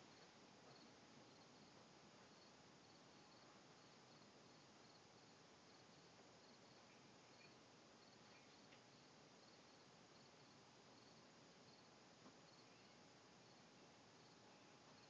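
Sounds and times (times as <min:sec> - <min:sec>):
faint steady hiss: 0:00.0 - 0:15.0
insect chirping: 0:00.1 - 0:15.0.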